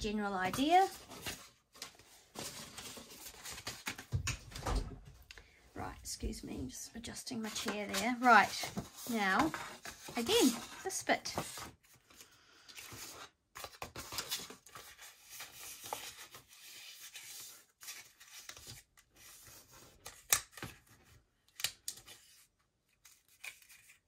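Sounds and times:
cardstock rustling and scraping: 7.4 - 12.2, 22.0 - 24.0.

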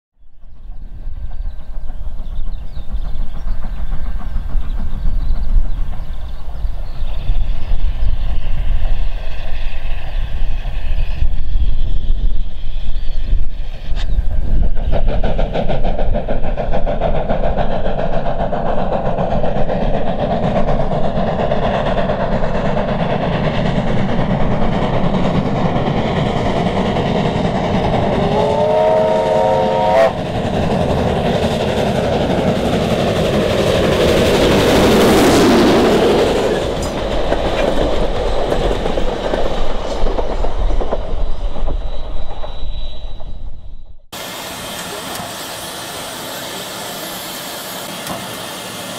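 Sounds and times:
steam locomotive exhaust and running gear: 0.2 - 48.9
steam locomotive whistle: 28.1 - 30.3.

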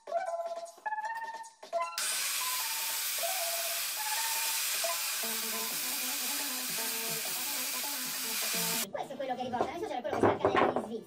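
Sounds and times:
loud steady hiss: 2.0 - 8.8.

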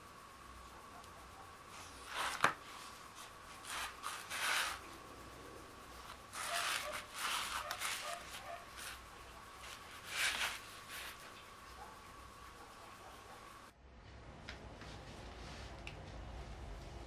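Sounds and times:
rustling and handling noises: 1.6 - 5.0, 6.0 - 11.8.

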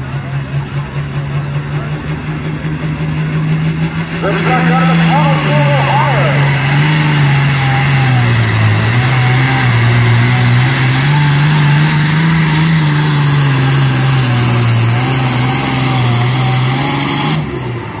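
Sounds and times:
engine at high revs: 0.0 - 18.0.

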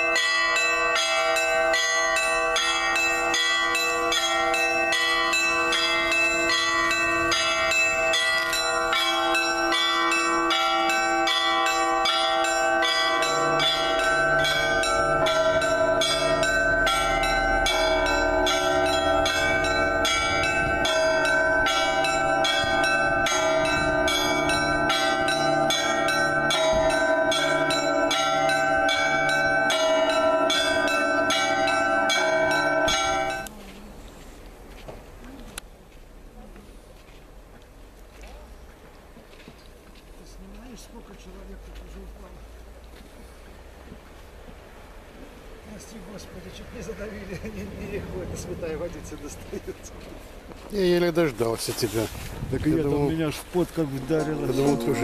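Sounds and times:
church bells ringing a peal: 0.0 - 33.5, 52.9 - 55.0
deeper bells: 0.0 - 33.5, 52.7 - 55.0.

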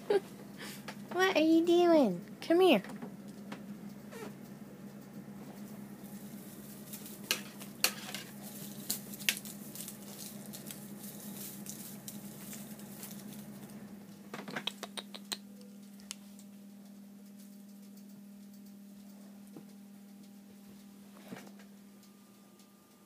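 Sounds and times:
steady low hum: 0.0 - 23.0
feather toy rustling and clicking: 5.0 - 13.7.

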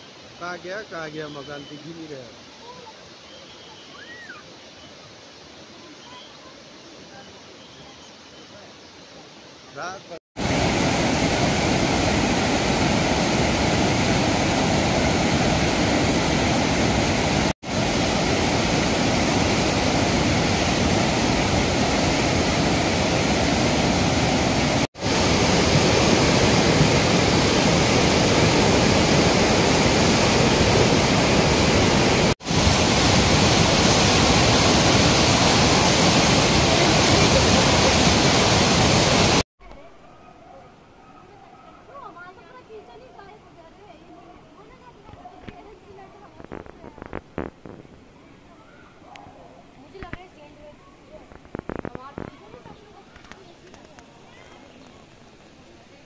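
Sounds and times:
floodwater rushing: 10.4 - 39.4.

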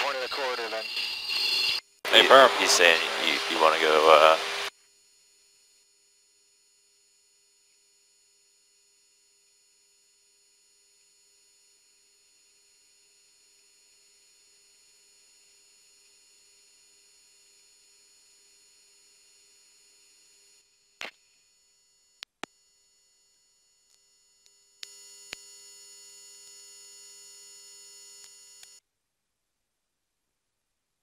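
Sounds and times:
electronic hum and tones: 18.5 - 28.8.

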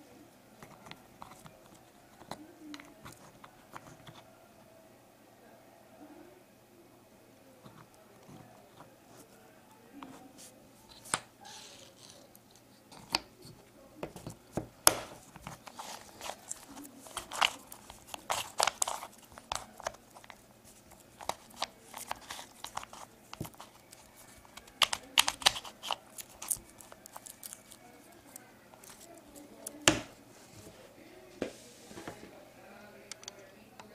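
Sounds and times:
puzzle cube clicking and rattling: 15.0 - 29.8.

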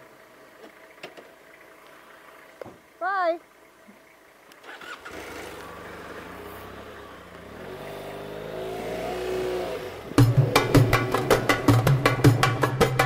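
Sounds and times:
motorcycle engine accelerating: 4.6 - 13.0.

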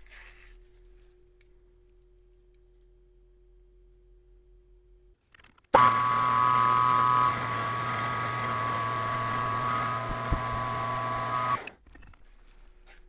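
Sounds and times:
metal lathe whining hum: 5.8 - 11.7.

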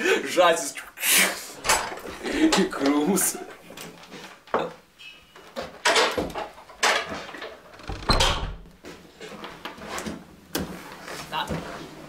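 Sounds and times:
wooden door opening and shutting: 1.6 - 3.0, 5.7 - 8.8
door knocks and scrapes: 7.7 - 8.8.

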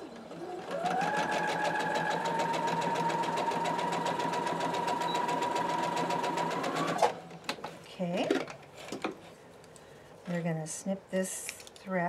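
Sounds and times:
sewing machine motor whine: 0.2 - 7.1.

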